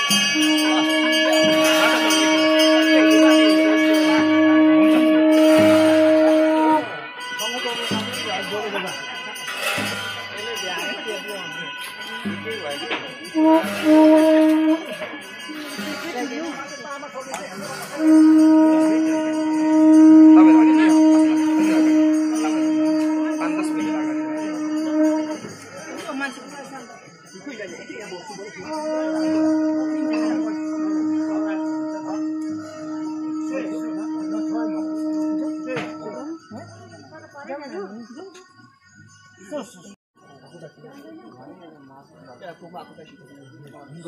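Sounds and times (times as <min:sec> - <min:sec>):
deeper horn notes: 0:00.0 - 0:08.2, 0:13.2 - 0:16.8, 0:17.6 - 0:26.0, 0:28.6 - 0:36.7
horn long held note: 0:00.0 - 0:26.3, 0:28.6 - 0:36.8.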